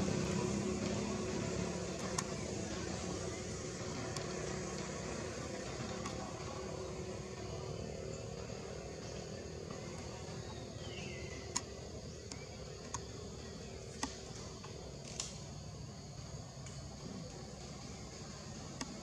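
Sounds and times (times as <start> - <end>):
low mechanical rumble: 0.0 - 19.0
sharp clicks: 15.0 - 15.4.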